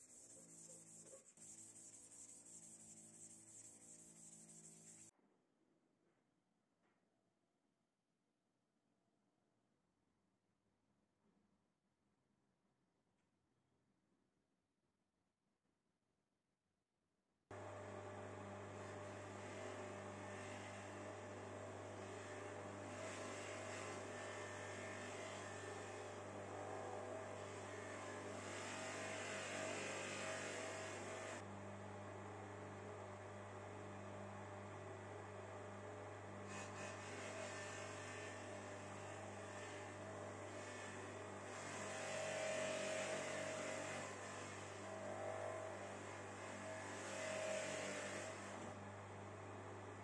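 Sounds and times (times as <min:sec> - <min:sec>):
metal scrubbing on buffing wheel: 0:00.0 - 0:05.1.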